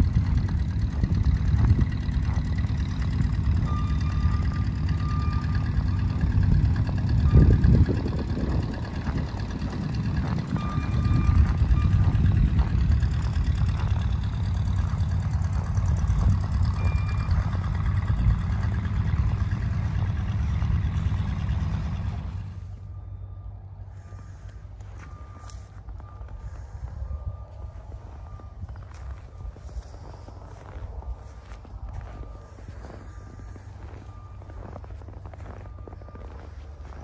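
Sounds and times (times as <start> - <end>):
backup alarm beeping: 0.0 - 21.8, 22.6 - 37.0
vehicle engine rumbling: 0.0 - 37.0.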